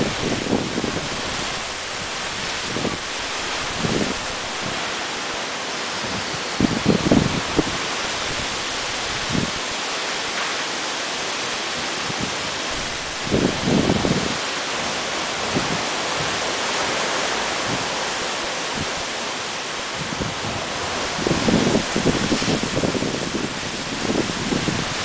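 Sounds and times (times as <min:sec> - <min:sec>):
heavy rain pouring: 0:00.0 - 0:25.0
wind gusts buffeting microphone: 0:00.0 - 0:25.0.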